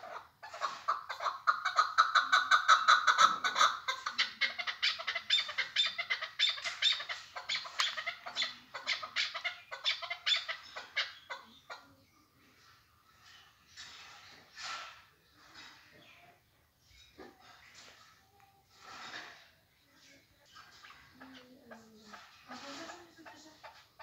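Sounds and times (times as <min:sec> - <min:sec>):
partridge clucking: 0:00.0 - 0:11.9.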